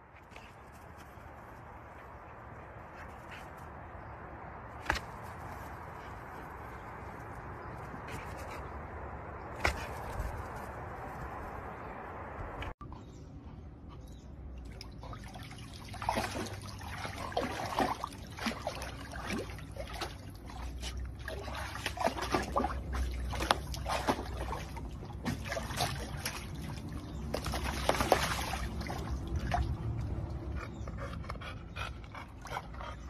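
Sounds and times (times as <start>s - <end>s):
dog splashing in water: 14.7s - 30.2s.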